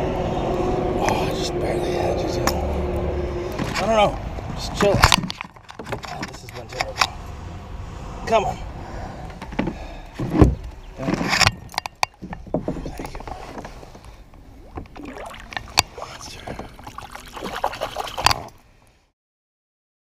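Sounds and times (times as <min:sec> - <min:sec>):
water splashing: 0:12.2 - 0:18.6.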